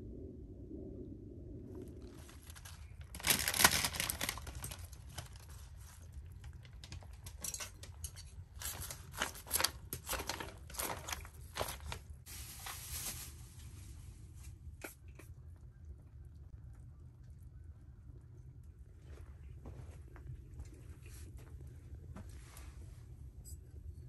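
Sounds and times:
rustling and crinkling: 1.7s - 15.3s, 18.9s - 24.0s.

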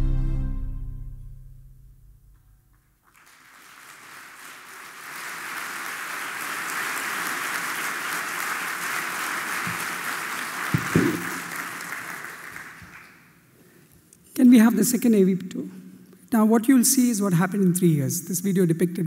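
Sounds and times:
soft music: 0.0s - 1.8s
audience applause: 3.0s - 13.4s.

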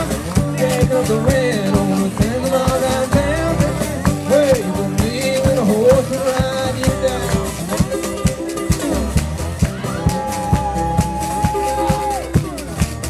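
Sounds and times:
man singing: 0.0s - 9.0s
acoustic guitar picking: 0.0s - 13.0s.

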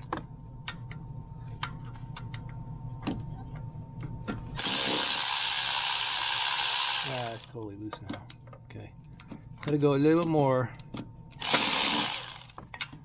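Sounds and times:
cordless electric ratchet running: 4.6s - 7.5s, 11.4s - 12.6s.

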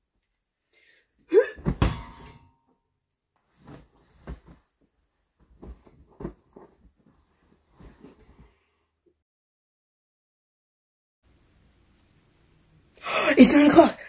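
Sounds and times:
thump on bed: 1.6s - 2.2s
bedding rustling: 3.4s - 9.0s.

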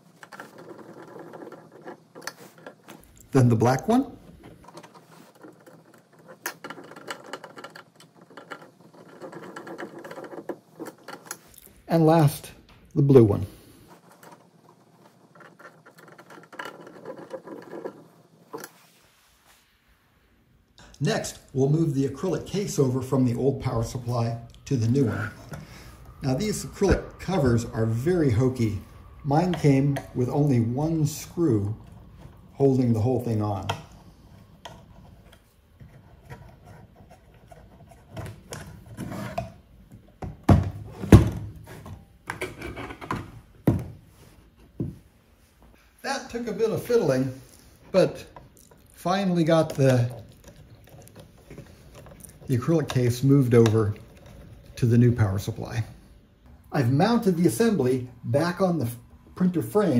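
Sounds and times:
light rubbing and clicking: 0.0s - 11.8s, 13.2s - 19.6s, 31.2s - 39.7s
screwdriver scraping and clicking: 13.9s - 18.8s.

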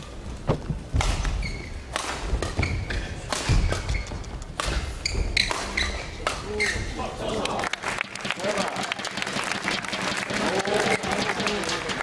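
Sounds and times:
rackets hitting shuttlecock: 0.9s - 6.8s
shoes squeaking on court: 1.2s - 7.0s.

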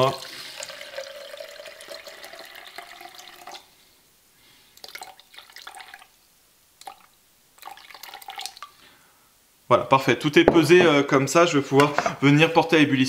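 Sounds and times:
water trickling and splashing: 0.0s - 3.6s, 4.8s - 6.1s, 6.8s - 8.8s
water pouring into plastic jug: 0.0s - 3.7s, 4.8s - 6.2s, 6.8s - 8.8s.

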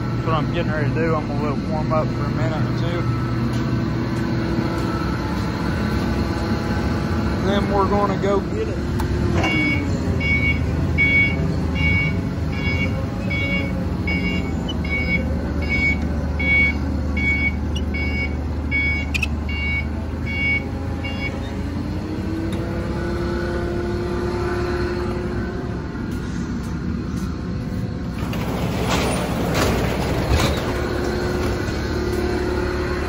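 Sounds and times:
forklift engine running: 0.0s - 33.0s
reverse backup alarm beeping: 9.4s - 21.8s.

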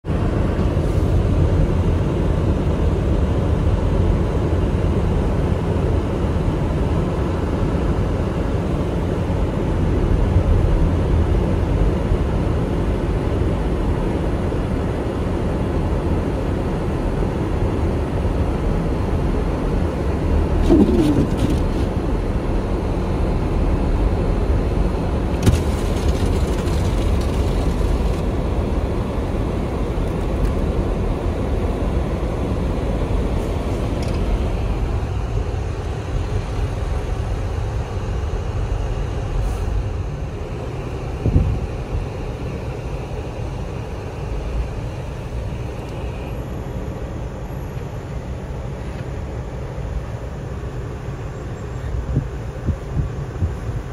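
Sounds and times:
car driving on snowy road: 0.0s - 53.9s
brief squeak: 20.6s - 21.9s.

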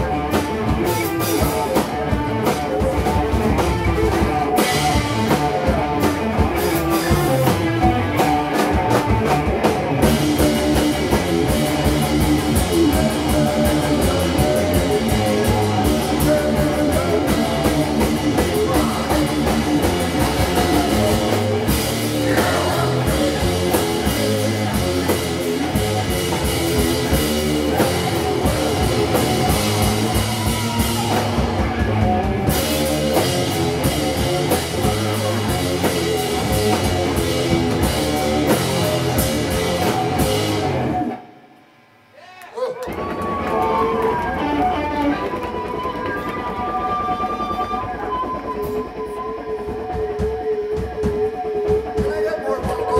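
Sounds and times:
drum kit: 0.0s - 41.5s, 42.2s - 52.9s
electric guitars: 0.0s - 41.8s, 42.6s - 52.9s.

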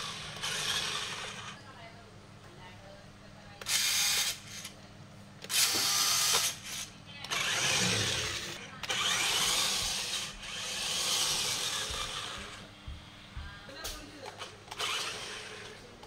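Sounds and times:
toy truck motor whirring: 0.0s - 1.6s, 3.6s - 4.8s, 5.4s - 12.7s, 14.4s - 15.8s.

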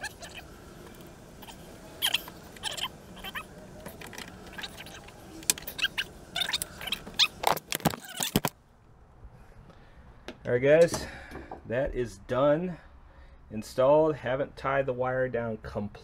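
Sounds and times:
hands clicking and rustling wiring: 3.6s - 8.6s.

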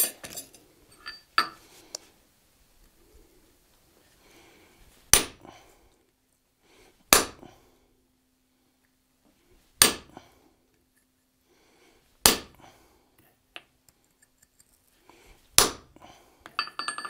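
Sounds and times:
hammer striking metal punch: 9.8s - 10.1s, 15.6s - 15.8s.

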